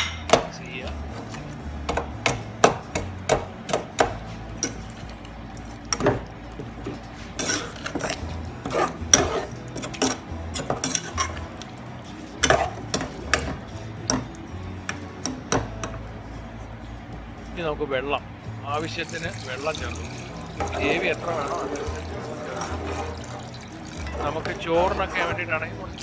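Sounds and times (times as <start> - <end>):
ladle scraping and clinking saucepan: 7.2 - 11.5, 20.0 - 25.4.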